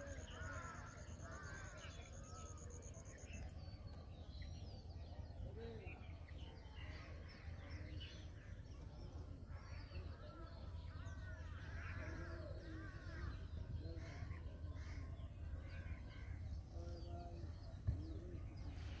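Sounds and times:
crow cawing: 0.0s - 2.0s.

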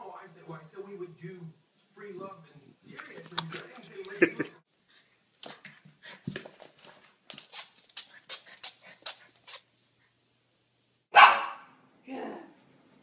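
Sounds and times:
puppy panting: 7.4s - 9.7s.

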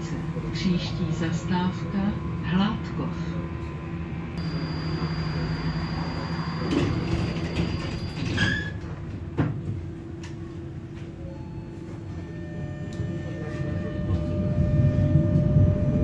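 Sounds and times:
tram humming: 0.0s - 16.0s
short high squeal: 4.5s - 8.8s.

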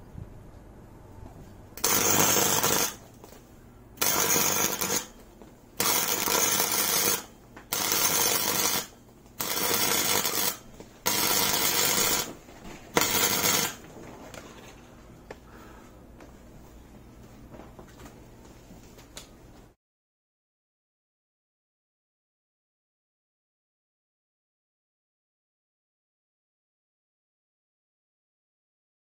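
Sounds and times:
arc welder crackling: 1.7s - 14.7s.

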